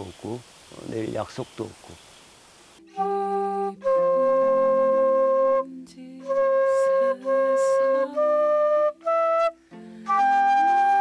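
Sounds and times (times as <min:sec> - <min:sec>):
low sustained accompanying tones: 0:02.6 - 0:11.0
bamboo flute melody: 0:02.8 - 0:11.0.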